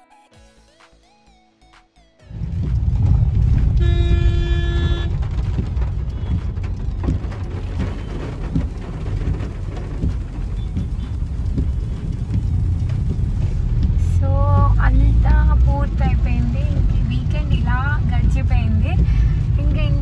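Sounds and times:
deep rumble: 2.3 - 20.0
heavy rain drumming on car roof: 2.4 - 20.0
car horn: 3.4 - 6.6.

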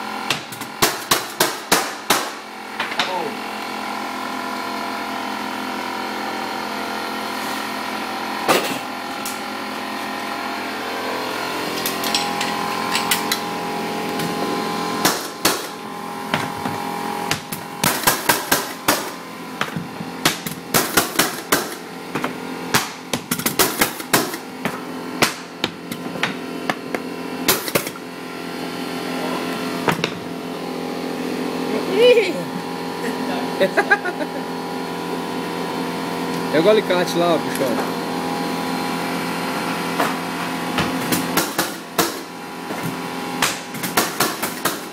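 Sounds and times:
steady machine hum: 0.0 - 44.9
flooring nailer bangs: 0.4 - 2.4, 15.0 - 15.8.

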